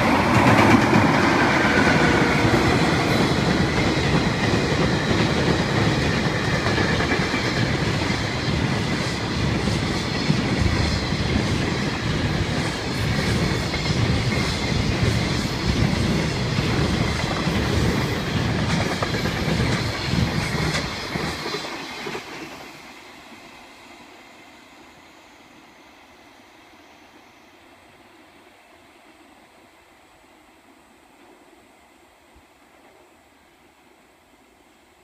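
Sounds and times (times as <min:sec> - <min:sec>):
train wheels clattering over rail joints: 0:00.0 - 0:22.6.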